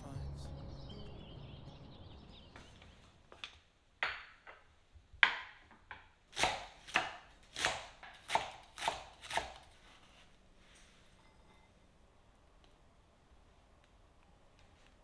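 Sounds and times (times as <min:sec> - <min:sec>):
knife slicing cabbage on board: 0:06.4 - 0:09.8.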